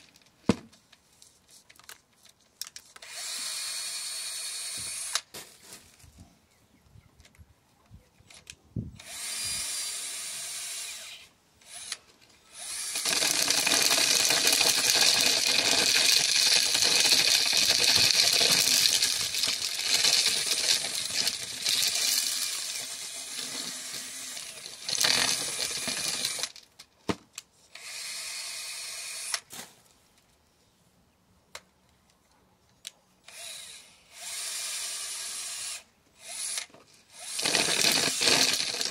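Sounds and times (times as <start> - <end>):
cordless drill stripping corn kernels: 2.9 - 5.6, 9.0 - 26.7, 27.7 - 29.6, 33.2 - 38.9
drill spinning freely: 3.0 - 5.2, 9.0 - 26.6, 27.7 - 29.4, 33.3 - 38.9.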